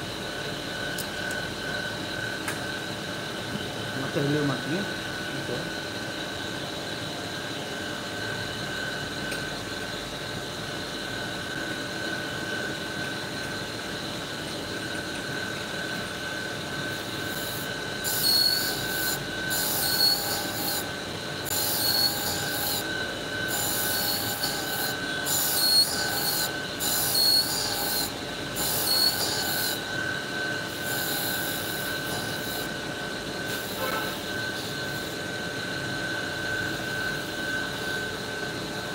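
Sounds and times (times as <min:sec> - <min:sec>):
grinding wheel whining: 0:15.8 - 0:38.9.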